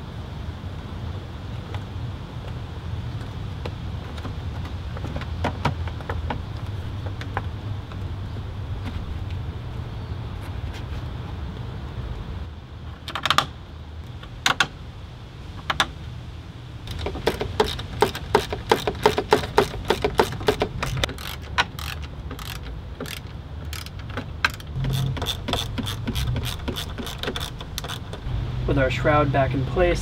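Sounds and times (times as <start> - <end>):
plastic parts clicking and clacking: 16.9 - 28.2.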